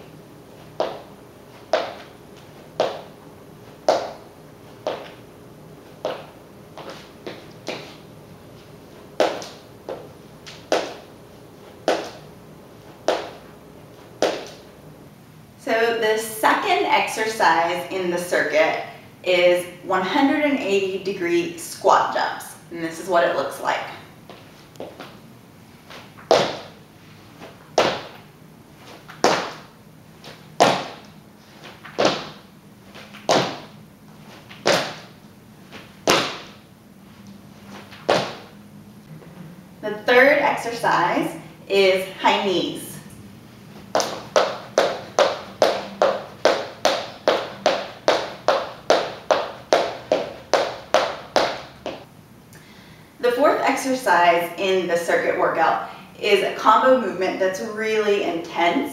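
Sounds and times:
light foot taps: 0.7 - 3.1, 3.8 - 4.2, 4.8 - 5.2, 6.0 - 11.1, 11.8 - 12.2, 13.0 - 13.5, 14.2 - 14.6, 25.9 - 26.7, 30.2 - 35.1, 37.7 - 38.5, 43.8 - 52.1
sneaker landing thuds: 0.7 - 3.1, 3.8 - 4.2, 4.8 - 5.2, 6.0 - 8.1, 9.2 - 11.1, 11.8 - 12.2, 13.0 - 13.4, 14.2 - 14.6, 25.9 - 26.8, 27.4 - 28.2, 28.9 - 31.0, 31.6 - 36.6, 37.7 - 38.6, 43.9 - 52.1
feet landing thuds on plank floor: 1.7 - 2.1, 6.0 - 8.0, 25.9 - 26.7, 27.8 - 28.2, 30.3 - 31.0, 31.6 - 32.4, 33.0 - 33.8, 34.4 - 35.2, 35.8 - 36.6, 37.9 - 38.5.

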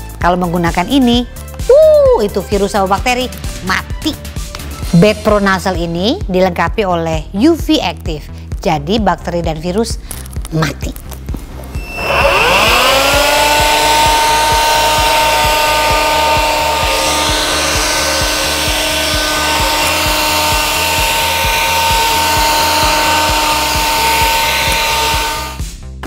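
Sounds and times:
handheld vacuum cleaner whining: 11.7 - 25.7.

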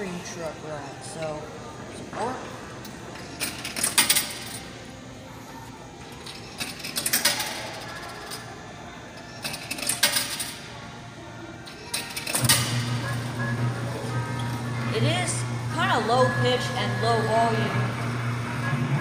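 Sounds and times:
coins clinking into coin mechanism: 9.4 - 10.6
kiddie ride motor running: 11.9 - 19.0.

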